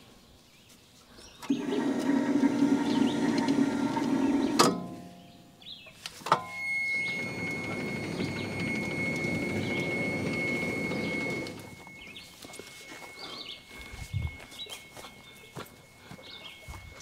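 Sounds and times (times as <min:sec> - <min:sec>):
hydraulic pump drone: 0:01.4 - 0:05.2, 0:06.2 - 0:17.0
hydraulics clunk: 0:01.4 - 0:05.3, 0:06.2 - 0:12.3
high steady whine: 0:06.2 - 0:17.0.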